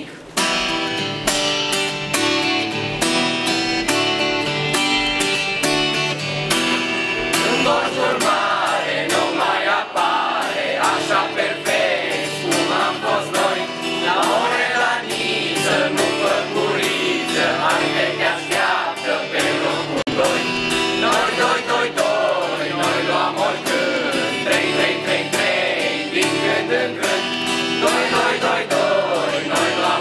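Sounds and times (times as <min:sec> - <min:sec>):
strummed acoustic guitar: 0:00.0 - 0:30.0
group singing in unison: 0:06.8 - 0:30.0.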